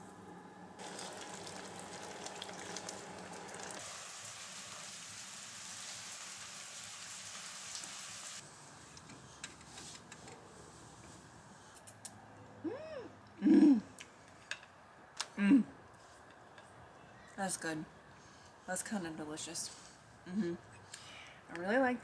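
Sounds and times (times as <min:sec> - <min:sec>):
frying pan sizzling: 0:00.8 - 0:08.4.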